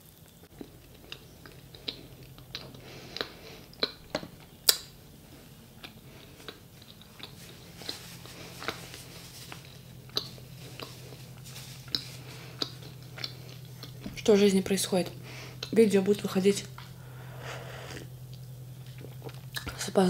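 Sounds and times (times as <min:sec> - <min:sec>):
chewing bread: 0:00.5 - 0:14.2, 0:17.8 - 0:19.8.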